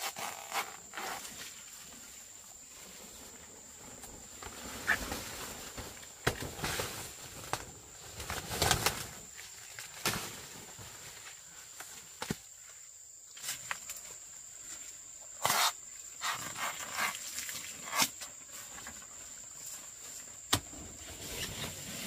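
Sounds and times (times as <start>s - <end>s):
leafy rustling with snaps: 4.0s - 12.6s.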